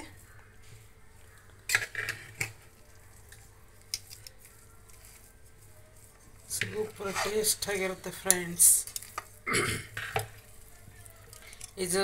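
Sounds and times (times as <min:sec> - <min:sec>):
metal ladle scraping and clinking pot: 0:01.7 - 0:02.7.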